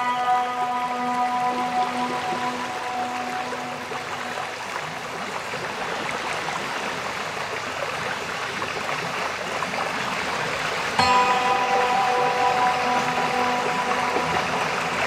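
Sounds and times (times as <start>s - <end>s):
fountain water splashing: 0.0s - 15.0s.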